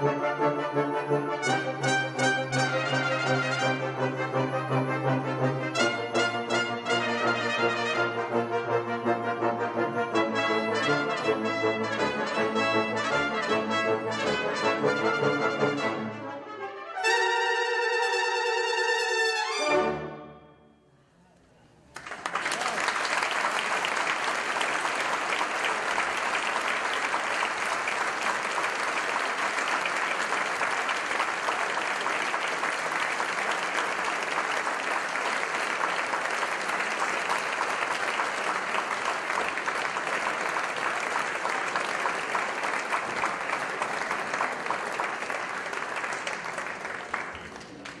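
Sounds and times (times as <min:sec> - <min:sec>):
audience applauding: 0:21.9 - 0:48.0.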